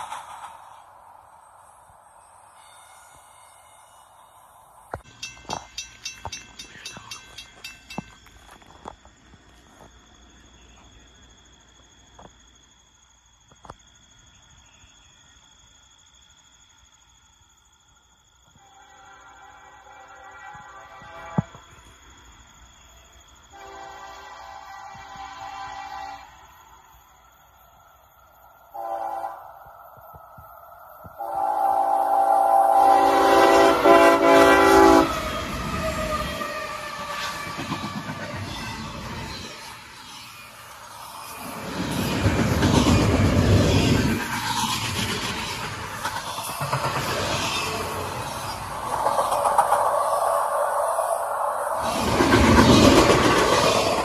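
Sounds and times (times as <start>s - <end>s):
locomotive engines and wheels rumbling: 0.0s - 11.6s, 33.0s - 54.0s
insects chirring: 0.0s - 54.0s
locomotive horn: 18.6s - 21.7s, 23.5s - 26.4s, 28.8s - 29.5s, 31.2s - 37.5s.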